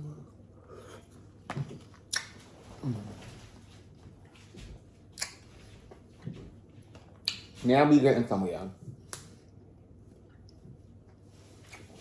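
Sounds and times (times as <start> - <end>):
sharp mouth smacks: 5.2 - 5.4.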